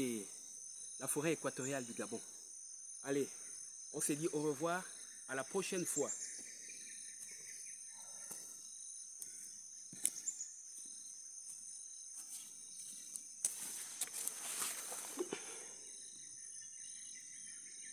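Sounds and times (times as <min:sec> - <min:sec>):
high-pitched insect chorus: 0:00.0 - 0:17.9
rustling: 0:12.2 - 0:15.6.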